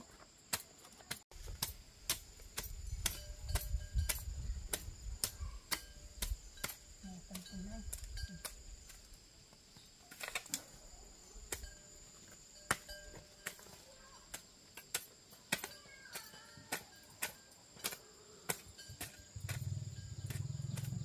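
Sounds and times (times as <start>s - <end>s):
high-pitched insect chirring: 18.8s - 21.0s.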